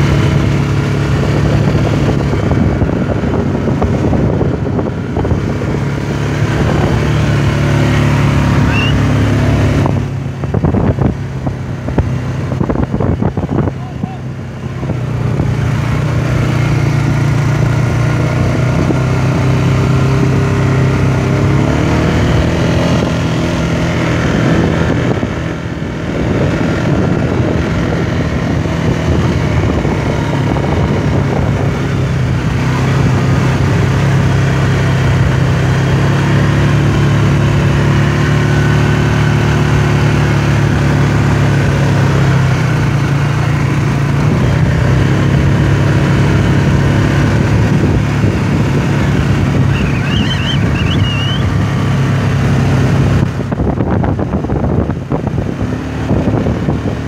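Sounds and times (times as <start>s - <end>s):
quad bike engine revving: 0.0s - 57.0s.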